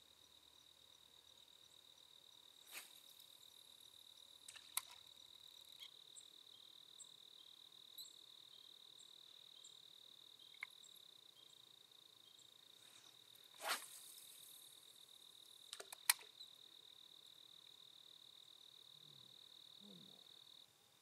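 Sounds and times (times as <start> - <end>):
crickets trilling: 0.0 - 21.0
faint clicks: 4.5 - 5.0, 10.5 - 10.8, 15.4 - 16.4.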